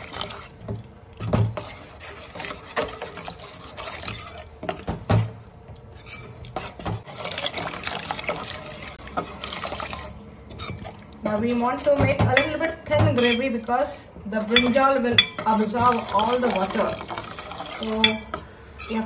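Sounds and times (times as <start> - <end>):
splashing and gurgling: 0.0 - 14.0, 14.6 - 18.4
water poured into sizzling pan: 6.4 - 11.2.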